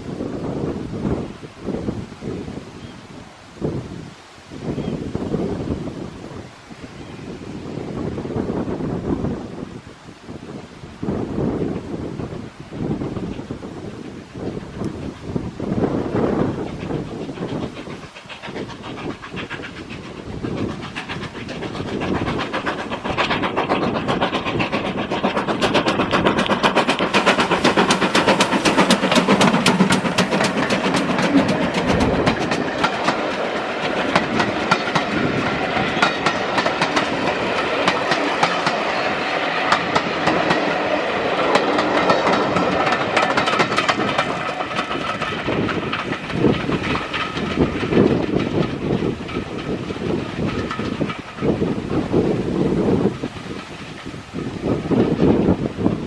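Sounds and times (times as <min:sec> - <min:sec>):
steam train passing: 0:00.0 - 0:56.0
wheels clicking over rail joints: 0:14.4 - 0:56.0.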